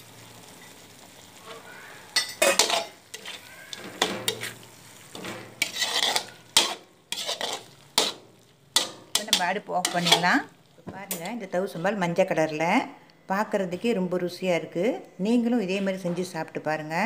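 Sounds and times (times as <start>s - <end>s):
metal spatula scraping a wok: 1.4s - 10.5s.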